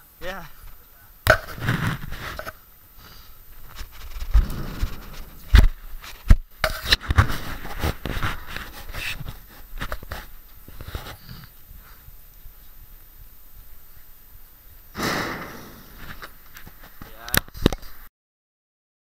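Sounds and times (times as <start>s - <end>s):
camera handling rustling and scraping: 1.3s - 2.6s, 3.6s - 11.6s.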